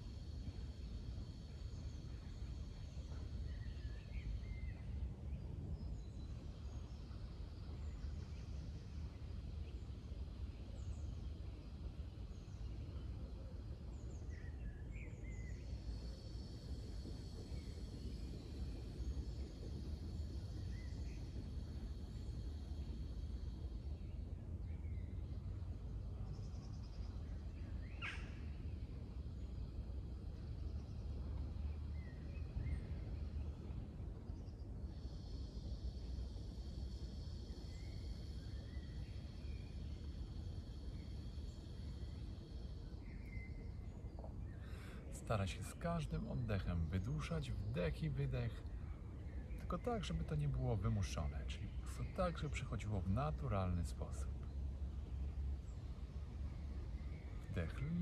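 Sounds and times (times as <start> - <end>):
low outdoor rumble: 0.0 - 58.0
small birds chirping: 0.0 - 58.0
bird chirps: 55.6 - 58.0.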